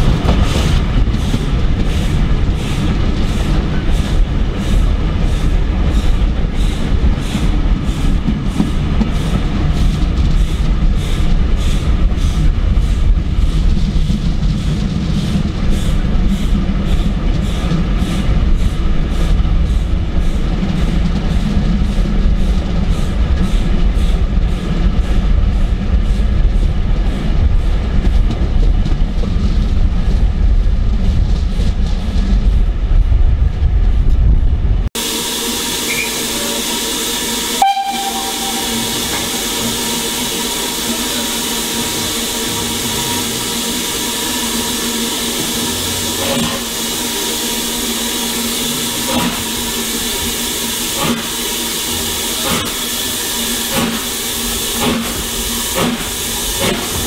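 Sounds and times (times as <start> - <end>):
steam locomotive exhaust beats: 0.0 - 57.0
train carriage rumble: 0.0 - 57.0
steam hissing: 35.0 - 57.0
steam train whistle: 35.8 - 36.7, 37.5 - 40.4.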